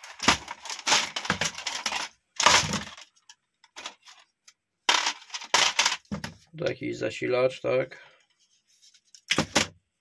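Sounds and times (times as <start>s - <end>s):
printer parts clattering: 4.9s - 6.4s.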